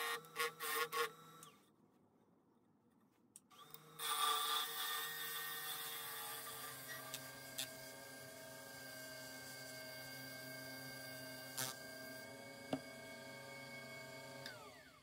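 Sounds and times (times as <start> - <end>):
lathe motor whine: 6.7 - 15.0.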